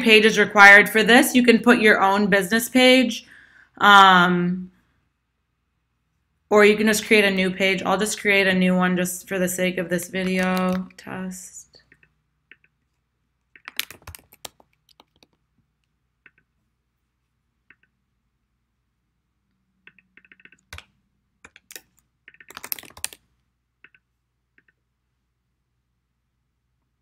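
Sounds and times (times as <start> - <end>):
typing on computer keyboard: 11.9 - 12.8, 13.5 - 15.4, 19.8 - 24.0.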